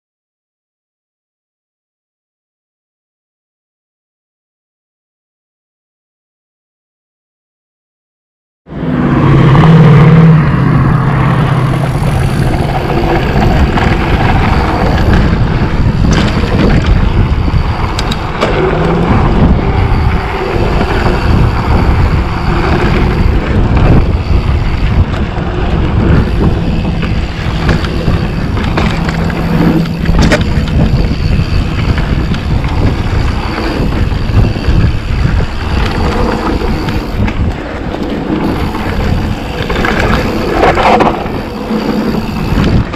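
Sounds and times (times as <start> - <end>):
tyres rumbling on dirt: 8.8 - 42.9
wind buffeting microphone: 9.0 - 42.9
bike knocks and rattles: 11.8 - 42.9.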